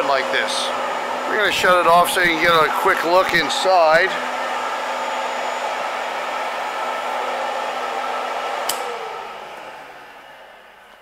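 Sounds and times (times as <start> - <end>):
mixer motors whining: 0.0 - 11.0
switch click: 8.6 - 8.9.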